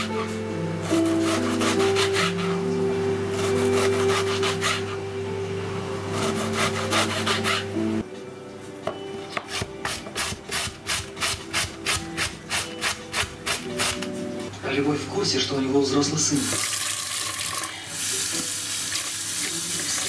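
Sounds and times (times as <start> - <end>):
rhythmic rasping scraping strokes: 0.0 - 5.0, 6.1 - 8.0.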